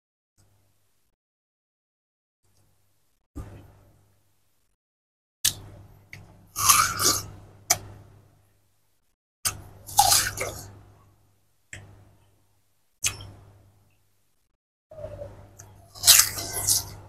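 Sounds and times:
person chewing watermelon: 0:06.6 - 0:07.3, 0:09.5 - 0:10.7, 0:15.6 - 0:17.0.

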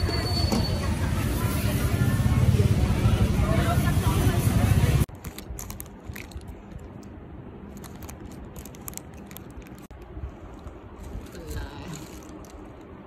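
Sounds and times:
plastic bag crinkling: 0:05.1 - 0:13.0.

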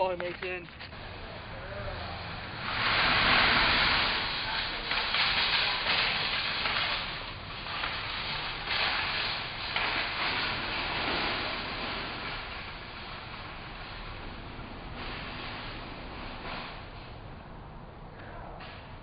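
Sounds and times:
rushing hiss: 0:01.0 - 0:17.2.

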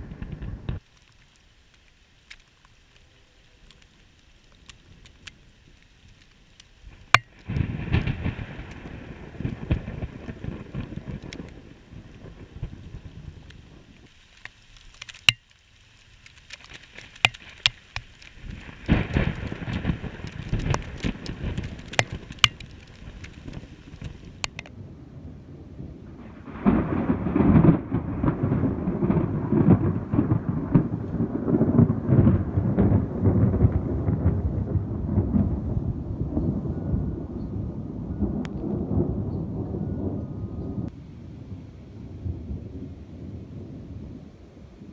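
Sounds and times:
thunder rumbling: 0:00.0 - 0:00.8, 0:06.9 - 0:14.1, 0:18.4 - 0:44.9
raindrops ticking on camera: 0:00.0 - 0:24.8, 0:26.2 - 0:35.7
rain: 0:00.0 - 0:44.9.

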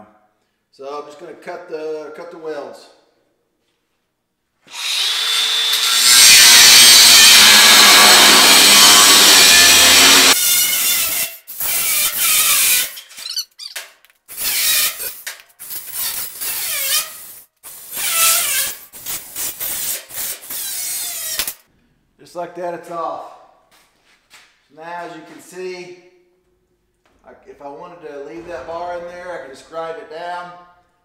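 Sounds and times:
angle grinder cutting steel: 0:04.7 - 0:13.4, 0:14.3 - 0:21.6.

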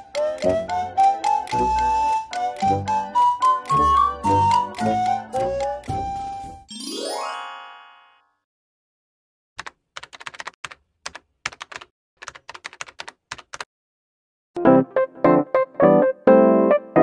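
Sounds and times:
keyboard typing clicks: 0:00.0 - 0:02.8, 0:03.4 - 0:06.0, 0:09.6 - 0:13.7.

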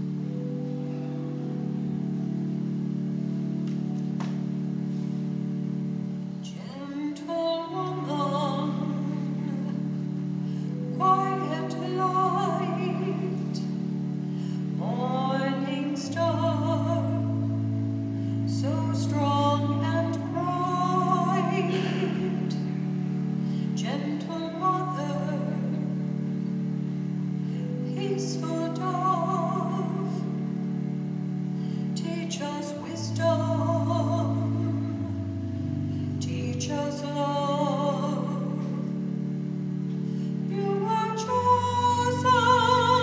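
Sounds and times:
organ chords: 0:00.0 - 0:43.0
solo singer singing: 0:06.4 - 0:14.0, 0:14.6 - 0:17.7, 0:18.4 - 0:23.0, 0:23.6 - 0:26.2, 0:31.9 - 0:35.4, 0:40.5 - 0:43.0.

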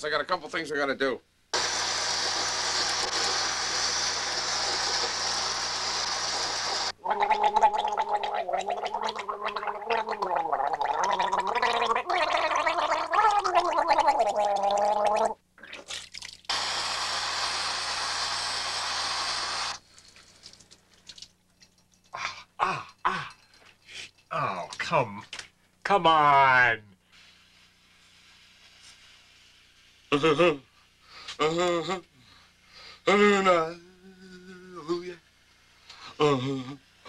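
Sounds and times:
tap running: 0:01.6 - 0:06.9
man gargling: 0:07.0 - 0:15.4, 0:22.2 - 0:23.4, 0:31.4 - 0:32.1, 0:36.2 - 0:36.8.

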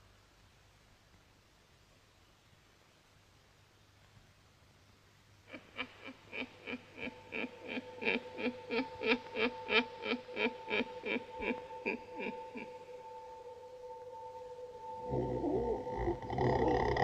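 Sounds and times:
held synth tones: 0:07.0 - 0:17.0.

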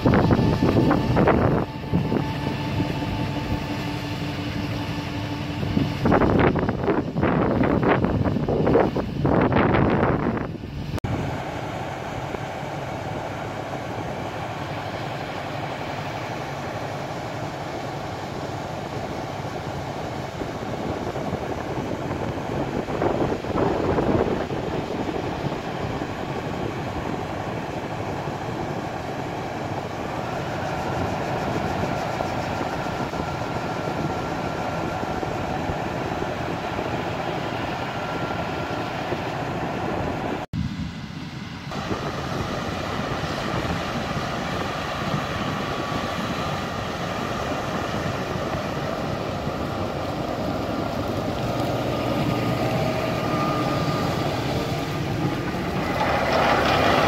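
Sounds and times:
combine harvester running: 0:00.0 - 0:57.0
faint steady whine: 0:00.0 - 0:57.0
tractor running: 0:00.0 - 0:57.0
auger unloading grain: 0:10.7 - 0:40.4, 0:41.6 - 0:57.0.

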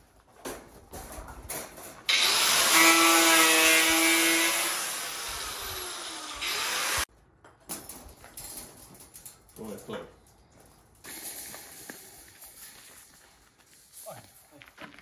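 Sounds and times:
power drill whirring: 0:02.1 - 0:07.1.

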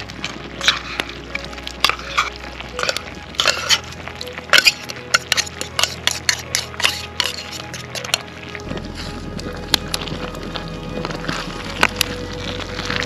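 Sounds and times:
sauce simmering: 0:00.0 - 0:13.0
metal utensil scraping a tin can: 0:00.2 - 0:01.2, 0:01.8 - 0:08.3.

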